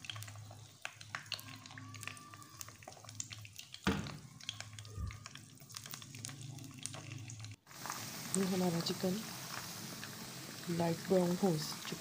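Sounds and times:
oil crackling and popping: 0.0s - 12.0s
thump: 3.9s - 4.2s.

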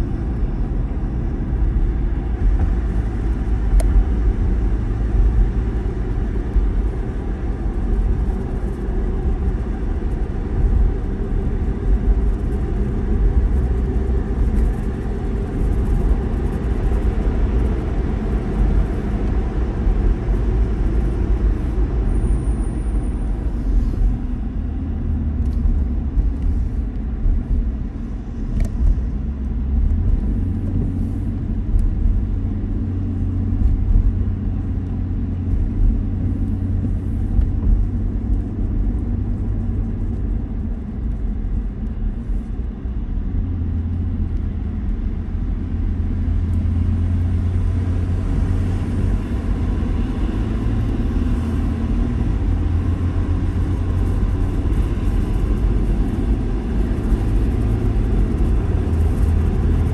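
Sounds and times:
car road and engine noise: 0.0s - 59.9s.

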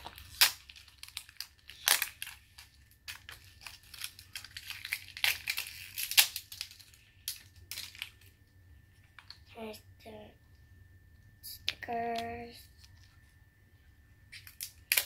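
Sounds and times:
wrapper crinkling and tearing: 0.0s - 8.4s, 14.3s - 15.0s.

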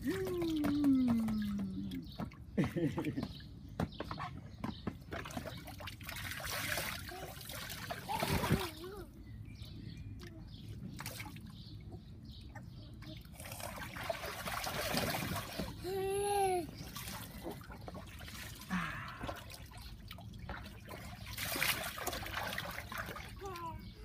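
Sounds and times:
water splashing in pool: 5.1s - 9.0s, 13.3s - 23.9s.

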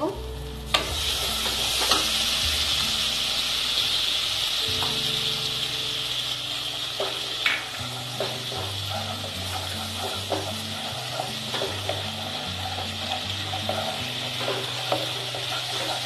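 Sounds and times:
liquid sizzling in hot oil: 0.0s - 16.0s
spatula knocking pan: 7.0s - 16.0s.

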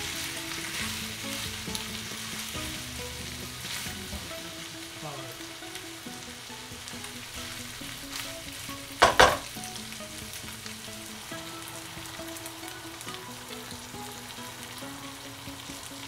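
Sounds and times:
meat sizzling in a frying pan: 0.0s - 16.0s
loud knocks: 9.0s - 9.5s.

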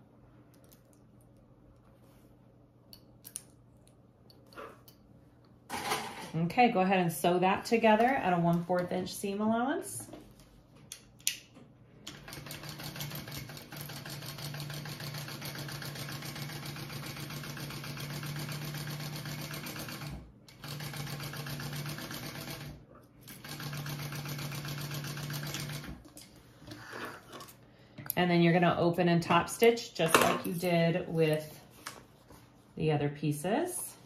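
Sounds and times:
sewing machine stitching: 12.1s - 26.0s.

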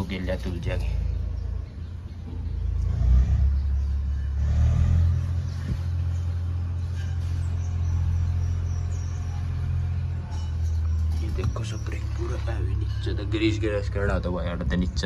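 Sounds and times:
low engine rumble: 0.0s - 15.0s.

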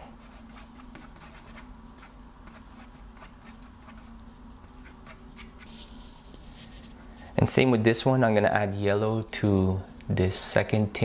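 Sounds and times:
paintbrush scratching on paper: 0.2s - 7.0s.

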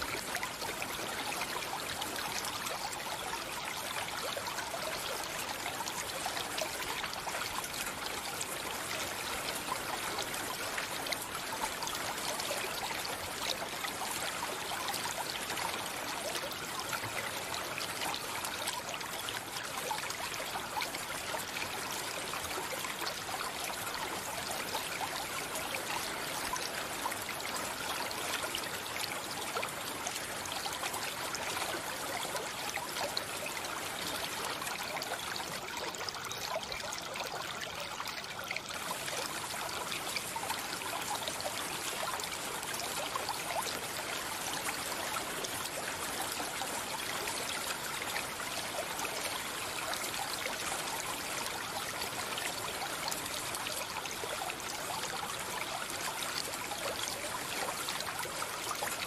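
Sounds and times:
stream water running: 0.0s - 59.0s.

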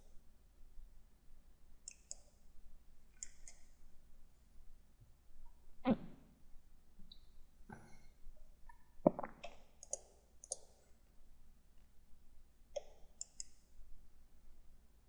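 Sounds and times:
computer mouse clicking: 1.8s - 2.4s, 3.2s - 3.8s, 9.4s - 10.8s, 12.8s - 13.6s.

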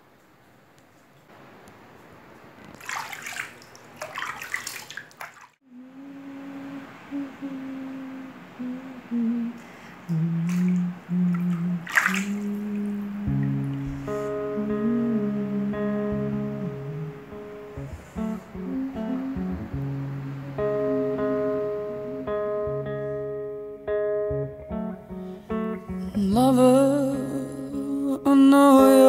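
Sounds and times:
sea waves washing: 2.2s - 22.6s
slow low melody: 5.7s - 29.0s.

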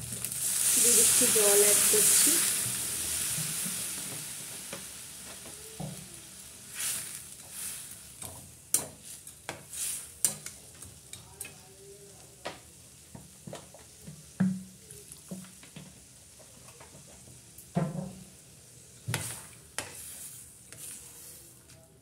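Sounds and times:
water sizzling in hot pan: 0.0s - 21.6s
spatula scraping pan: 19.2s - 21.6s.

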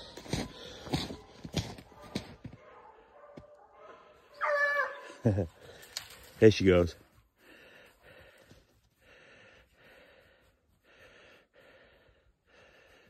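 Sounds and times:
faint breathing: 7.3s - 13.0s.

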